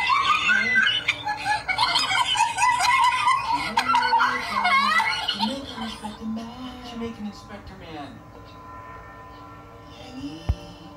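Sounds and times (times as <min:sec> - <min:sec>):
high wavering voice: 0:00.0 - 0:07.2, 0:09.8 - 0:10.9.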